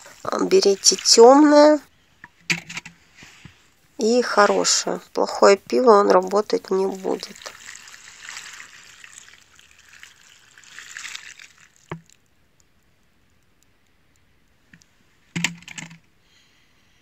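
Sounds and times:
milk splashing on bark: 0:00.0 - 0:01.8, 0:05.7 - 0:12.3.

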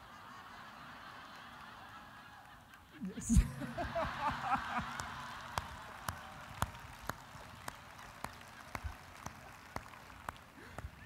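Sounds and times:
audience noise: 0:03.0 - 0:10.5
person clapping slowly: 0:04.4 - 0:11.0.

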